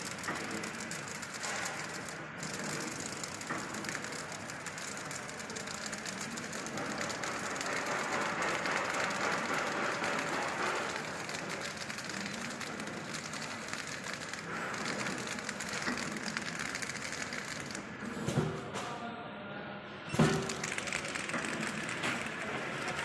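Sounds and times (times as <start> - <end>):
packing machine clattering: 0.0 - 17.9.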